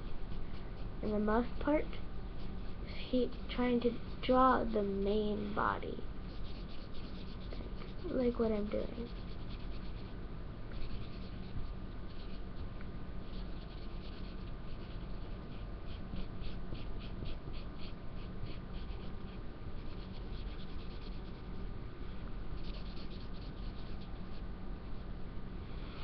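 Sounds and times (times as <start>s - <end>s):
marker scribbling on paper: 6.3s - 8.2s, 8.9s - 10.1s, 10.8s - 12.4s, 13.3s - 21.5s, 22.6s - 24.4s.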